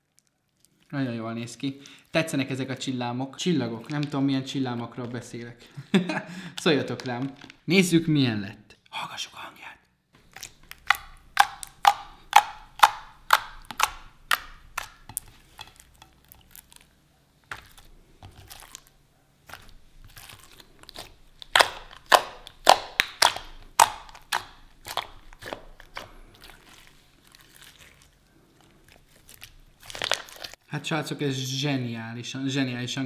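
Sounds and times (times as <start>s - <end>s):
slime clicking and popping: 10.2s - 16.9s, 19.5s - 26.5s, 29.4s - 30.6s.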